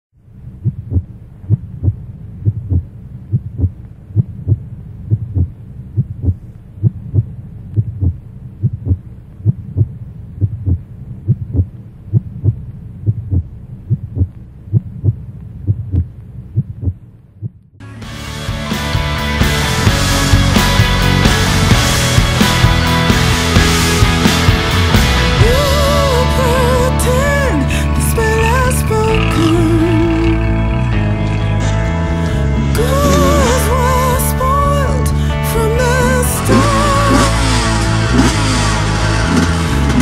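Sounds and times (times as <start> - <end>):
low hum: 0.2 - 18.2, 19.7 - 40.0
heartbeat thumps: 0.6 - 17.7
loud rock music: 17.8 - 40.0.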